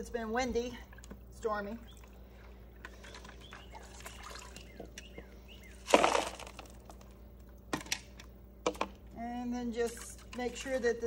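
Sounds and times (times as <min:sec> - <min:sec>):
wet leaves and water splashing: 0:03.0 - 0:04.8, 0:05.7 - 0:06.8.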